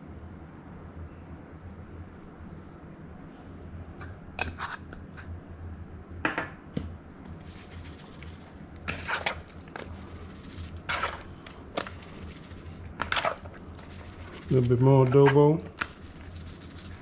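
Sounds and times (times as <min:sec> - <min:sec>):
low steady hum: 0:00.0 - 0:17.0
spice jar rattling shakes: 0:07.4 - 0:15.1, 0:15.7 - 0:17.0.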